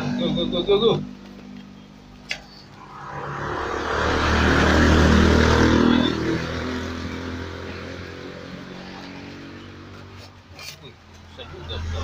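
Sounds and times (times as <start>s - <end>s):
vehicle engine passing by: 2.4s - 10.3s.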